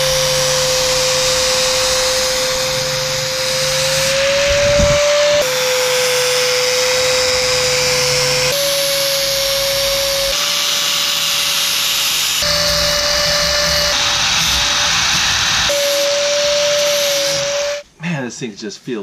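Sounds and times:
angle grinder motor whine: 0:00.0 - 0:17.8
abrasive hissing on wood: 0:11.7 - 0:17.8.

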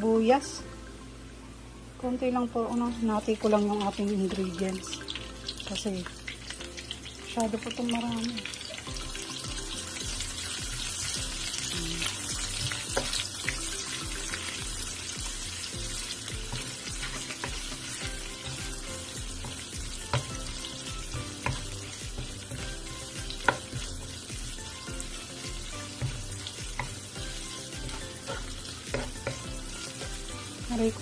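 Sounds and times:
onion and garlic sizzling: 0:02.0 - 0:31.0
spatula knocking against pan: 0:27.9 - 0:29.5.

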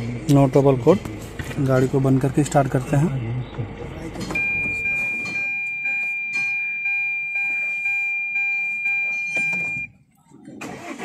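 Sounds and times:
electronic warning chime: 0:04.4 - 0:09.9.

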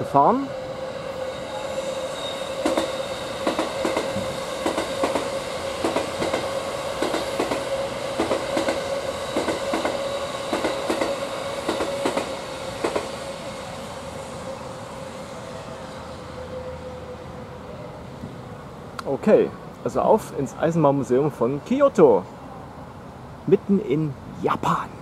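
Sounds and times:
train whine: 0:00.0 - 0:23.4
train wheels clicking over rail joints: 0:02.6 - 0:13.2.

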